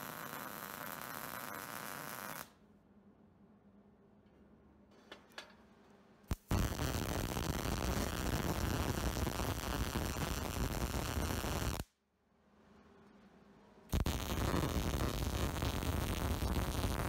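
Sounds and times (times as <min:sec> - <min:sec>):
welding arc crackling: 0:00.0 - 0:02.6, 0:06.3 - 0:11.9, 0:13.9 - 0:17.0.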